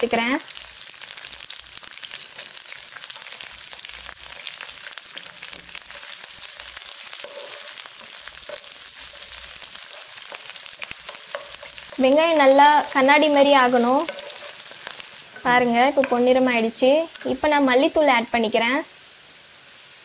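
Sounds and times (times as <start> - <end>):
onions sizzling in hot oil: 0.0 - 20.0
wooden spatula stirring: 2.3 - 16.2.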